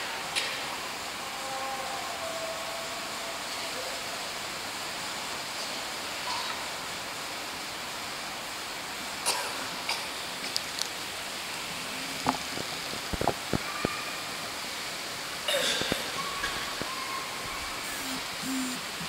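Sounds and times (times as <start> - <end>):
microphone room tone hiss: 10.1 - 19.0.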